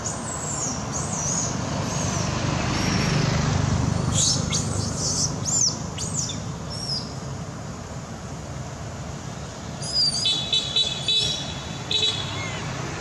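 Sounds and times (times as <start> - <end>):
distant traffic rumble: 0.0 - 13.0
high chirping calls: 4.0 - 7.2, 9.8 - 12.7.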